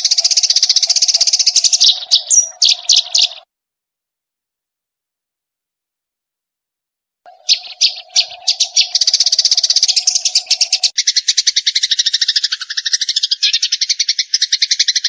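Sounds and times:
songbird trilling: 0:00.0 - 0:03.5, 0:07.3 - 0:15.0.

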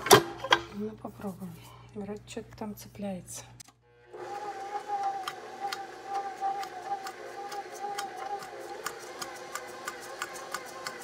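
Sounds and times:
stand mixer motor whine: 0:04.0 - 0:11.0
whisk ticking in bowl: 0:04.9 - 0:11.0.

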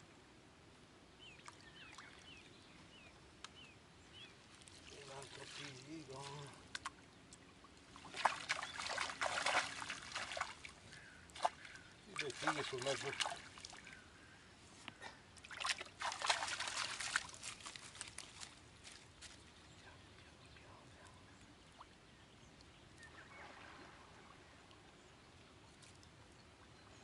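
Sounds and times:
water splashing around a net: 0:04.5 - 0:06.9, 0:07.9 - 0:14.0, 0:15.4 - 0:18.6
water dripping and trickling: 0:04.5 - 0:14.0, 0:15.4 - 0:19.4.

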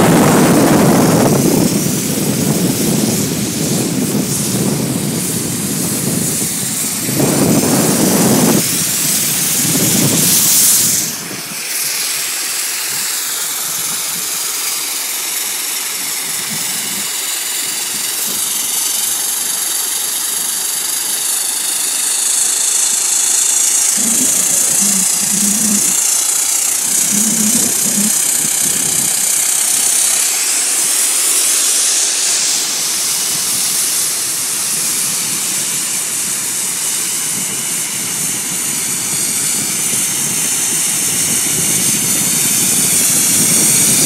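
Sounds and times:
wind buffeting microphone: 0:00.0 - 0:11.6, 0:23.3 - 0:29.4, 0:34.6 - 0:44.0
skis hissing on snow: 0:00.0 - 0:44.0
snowmaking gun spraying: 0:00.0 - 0:44.0.

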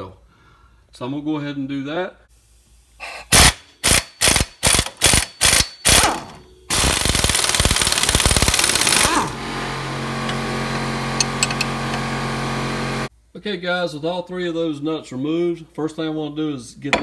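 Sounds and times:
pneumatic impact wrench bursts: 0:03.0 - 0:09.4.

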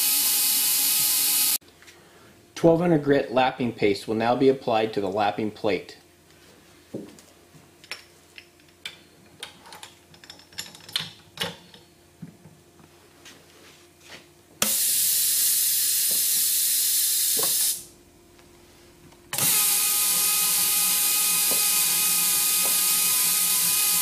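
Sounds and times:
air motor whine: 0:00.0 - 0:01.6, 0:12.9 - 0:24.0
compressed air hissing: 0:14.6 - 0:17.9.

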